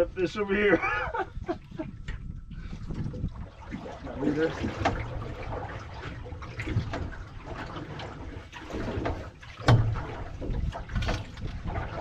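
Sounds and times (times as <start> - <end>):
water lapping against boat hull: 0.0 - 12.0.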